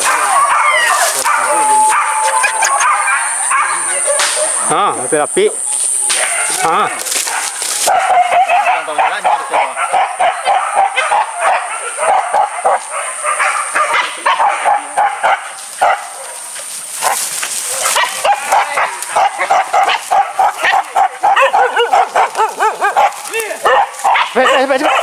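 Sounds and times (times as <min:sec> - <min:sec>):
dogs barking and yelping: 0:00.0 - 0:05.2, 0:05.9 - 0:25.0
high-pitched drone: 0:01.4 - 0:06.1.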